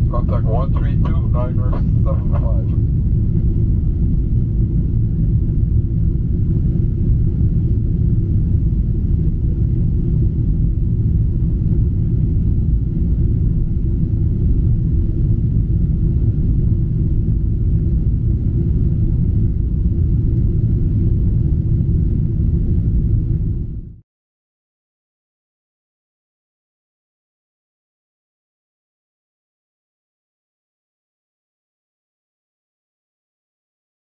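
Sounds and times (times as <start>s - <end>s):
jet cabin engine rumble: 0.0s - 24.0s.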